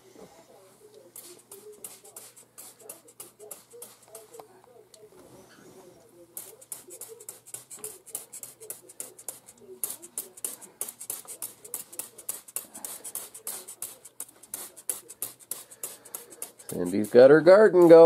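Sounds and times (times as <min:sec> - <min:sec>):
spray bottle squirts: 0:09.3 - 0:16.9.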